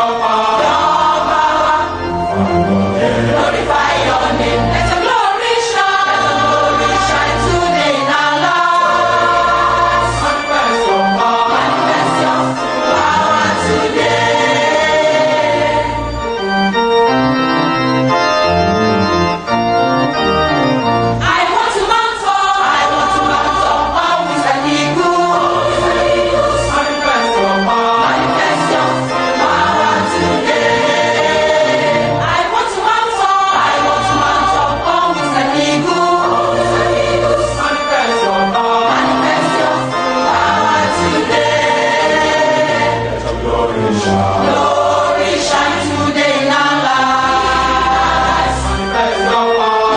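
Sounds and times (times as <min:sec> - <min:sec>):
choir singing: 0:00.0 - 0:17.6, 0:20.5 - 0:49.9
organ: 0:00.0 - 0:49.9
steady bass line: 0:00.7 - 0:05.0.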